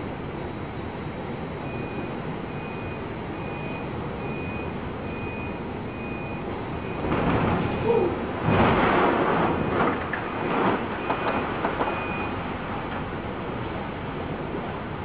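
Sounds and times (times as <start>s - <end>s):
heavy sea: 0.5s - 15.0s
storm wind: 5.7s - 15.0s.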